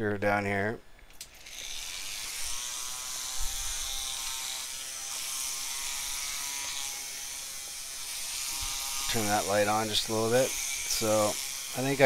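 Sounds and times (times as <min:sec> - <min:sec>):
rotary tool grinding glass: 0:01.3 - 0:12.0.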